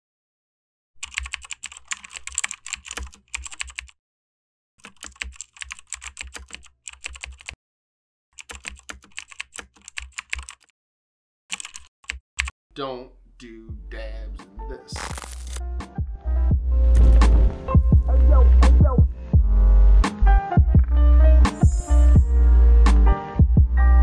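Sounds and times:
keyboard typing clicks: 1.0 - 3.9, 4.8 - 7.6, 8.4 - 10.7, 11.5 - 12.5.

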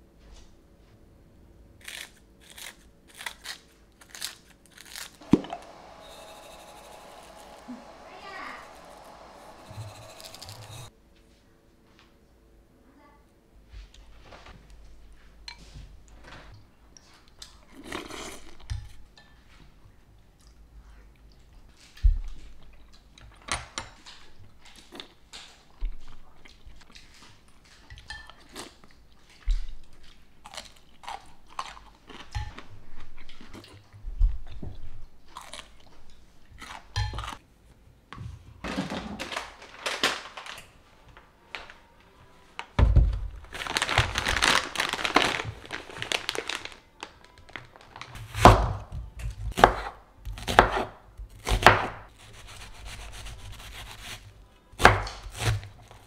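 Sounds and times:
chewing: 35.2 - 37.0
plastic packaging rustling: 38.6 - 48.4.

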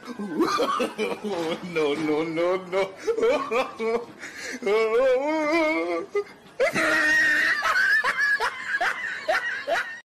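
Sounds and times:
high-pitched laugh: 2.9 - 10.0.

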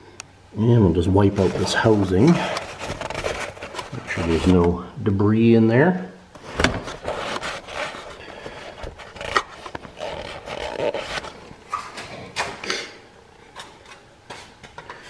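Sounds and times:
rag rubbing and scraping: 1.2 - 4.6, 6.4 - 12.6.

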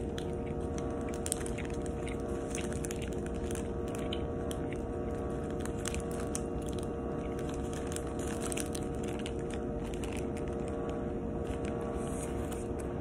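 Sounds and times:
wrapper crinkling: 0.0 - 12.9
biting and chewing bread: 0.0 - 13.0
steady background hum: 0.0 - 13.0.

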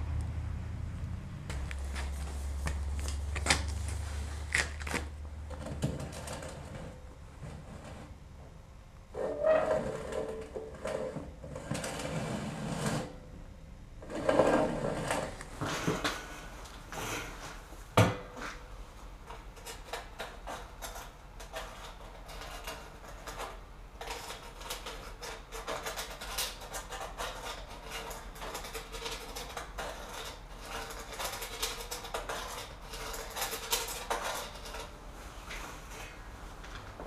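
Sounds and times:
bricks scraping in metal barrel: 9.2 - 13.2, 14.0 - 16.0, 19.4 - 35.0.

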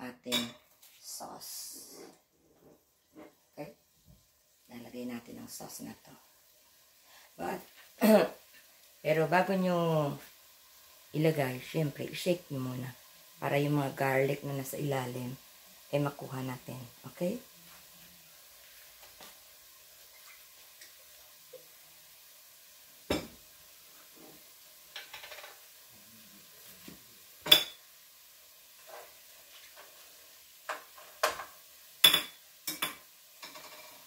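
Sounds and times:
faint sizzling: 0.0 - 34.0
utensil stirring ribs in a pot: 23.8 - 27.9, 28.7 - 34.0.

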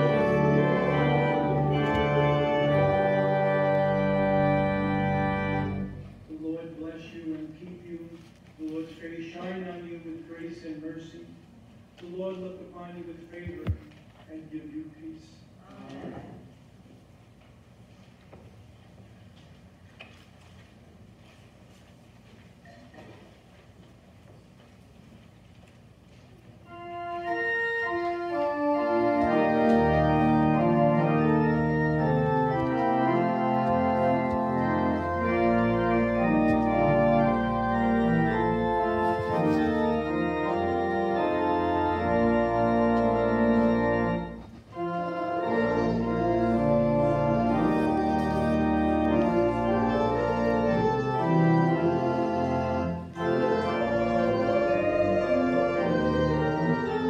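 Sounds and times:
church organ chords: 0.0 - 7.3, 26.6 - 57.0.

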